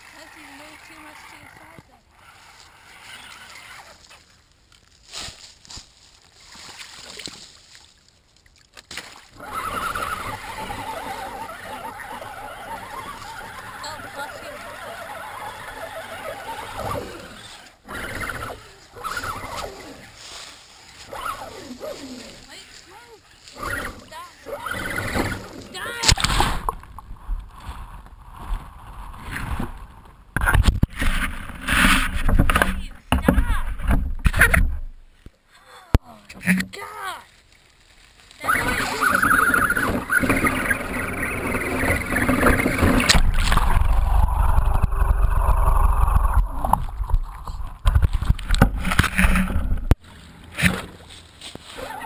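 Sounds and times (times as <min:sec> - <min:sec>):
water splashing and sloshing: 0:00.0 - 0:35.4, 0:36.2 - 0:52.0
gurgling water: 0:08.5 - 0:20.1, 0:38.4 - 0:50.7
low rumble: 0:42.8 - 0:48.6.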